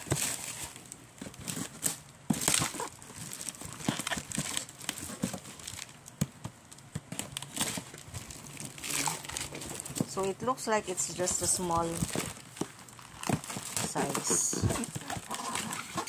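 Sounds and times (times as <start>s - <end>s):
cardboard box handled and opened: 0.0s - 5.9s, 11.1s - 16.0s
plastic wrap crinkling: 0.0s - 16.0s.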